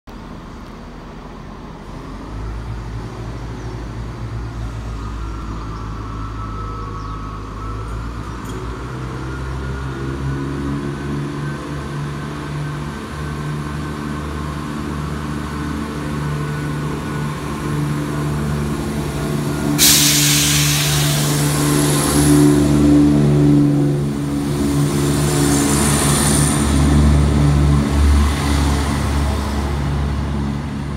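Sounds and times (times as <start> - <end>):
diesel train engine: 0.1 - 30.9
air hiss: 19.8 - 22.4.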